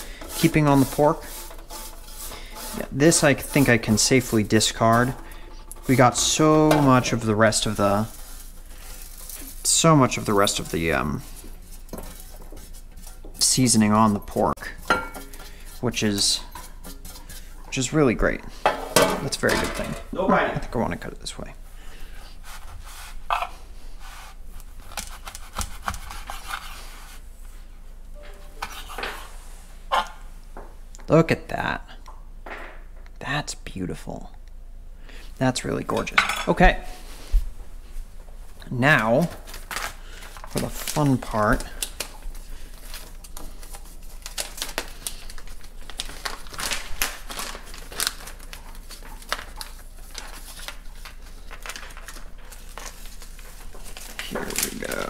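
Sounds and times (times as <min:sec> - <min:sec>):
plastic bag crinkling: 0:03.8 - 0:11.5, 0:39.3 - 0:55.0.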